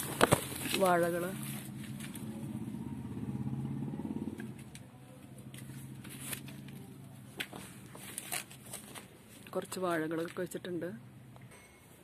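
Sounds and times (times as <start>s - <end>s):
motorcycle engine: 0.0s - 7.8s.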